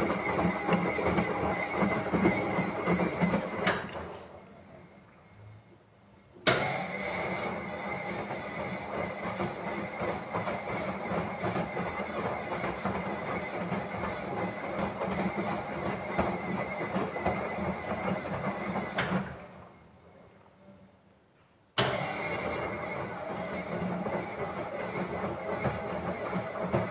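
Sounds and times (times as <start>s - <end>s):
washing machine drum tumbling laundry: 0.0s - 4.3s, 22.6s - 26.9s.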